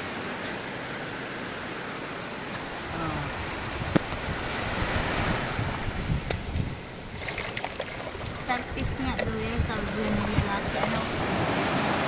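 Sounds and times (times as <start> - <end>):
surf washing over sand: 1.2 - 12.0
wind on microphone: 2.7 - 12.0.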